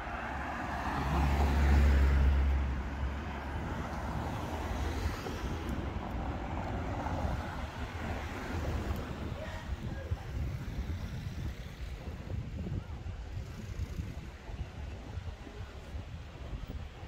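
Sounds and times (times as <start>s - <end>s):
car passing by: 0.0s - 9.7s
steady traffic noise: 0.0s - 17.0s.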